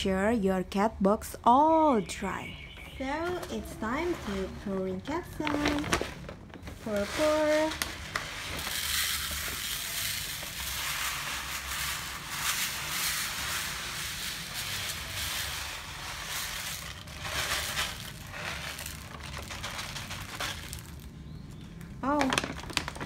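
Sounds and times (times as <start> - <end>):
litter granules pouring into tray: 7.0 - 21.2.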